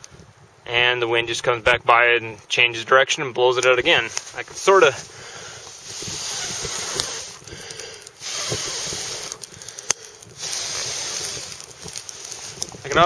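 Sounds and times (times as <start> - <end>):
person blowing on embers: 4.1 - 13.0.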